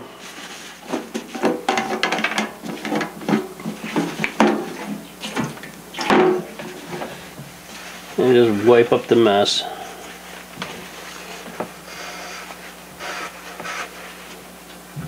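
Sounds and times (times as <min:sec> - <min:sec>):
metal can clanking on glass: 0:01.3 - 0:03.5.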